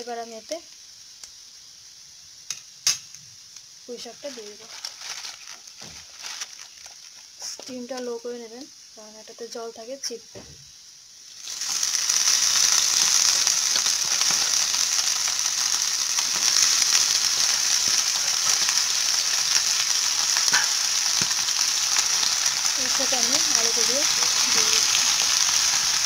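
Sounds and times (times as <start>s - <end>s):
leaves sizzling in hot oil: 0.0s - 26.0s
water spitting in hot oil: 10.8s - 26.0s.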